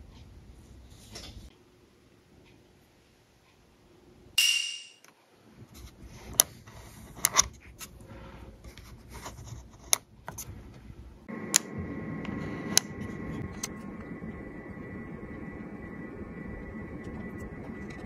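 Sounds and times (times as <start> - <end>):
steady hum: 10.9 - 18.0.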